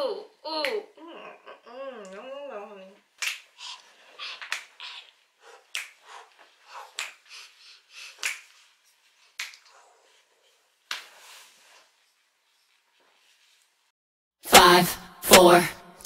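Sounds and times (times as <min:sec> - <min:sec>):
faint vocal sounds: 0:00.0 - 0:03.0
breathy hiss: 0:03.5 - 0:08.8
finger snaps in steady beat: 0:05.7 - 0:06.2, 0:06.9 - 0:07.3, 0:08.2 - 0:08.6, 0:09.4 - 0:09.7.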